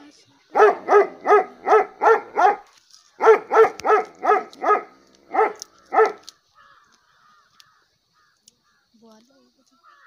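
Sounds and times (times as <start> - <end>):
dog barking: 0.5 - 6.2.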